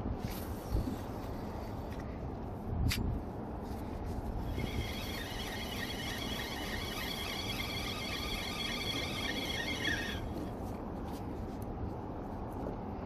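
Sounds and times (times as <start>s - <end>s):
wind rumbling on microphone: 0.0s - 13.0s
high multi-tone whine: 4.5s - 10.4s.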